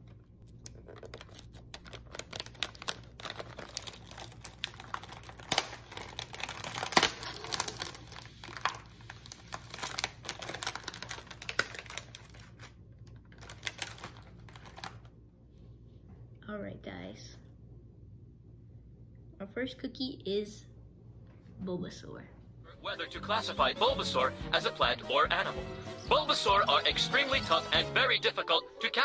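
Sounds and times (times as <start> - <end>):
cookie package crinkling: 0.0 - 15.2
sharp snaps of packaging: 0.6 - 8.8.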